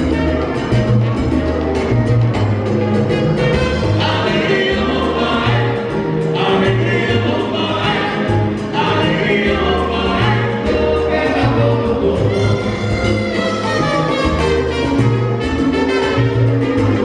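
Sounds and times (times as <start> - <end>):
percussion: 0.0 - 17.0
piano: 0.0 - 17.0
upright bass: 0.0 - 17.0
male chorus singing: 4.0 - 12.7.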